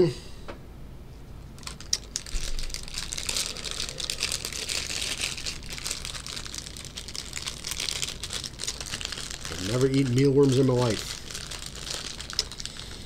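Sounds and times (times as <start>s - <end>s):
plastic wrapper crinkling: 1.6s - 13.0s.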